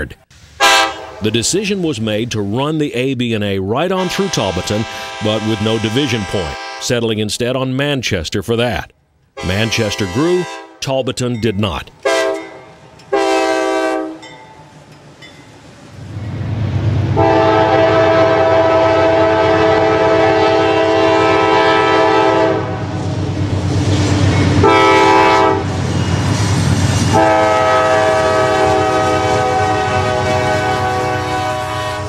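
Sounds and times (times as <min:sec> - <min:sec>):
locomotive air horn blasts: 0:00.6 - 0:01.2, 0:04.0 - 0:06.9, 0:09.4 - 0:10.8, 0:12.0 - 0:14.2, 0:17.2 - 0:23.0, 0:24.6 - 0:25.8, 0:27.1 - 0:32.0
locomotive engine rumble: 0:11.4 - 0:32.0.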